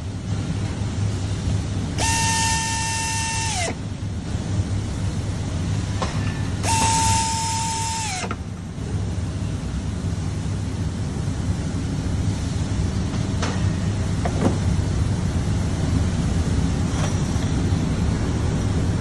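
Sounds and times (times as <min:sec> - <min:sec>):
steady low hum: 0:00.0 - 0:19.0
pneumatic driver whine: 0:01.9 - 0:03.9, 0:06.6 - 0:08.5.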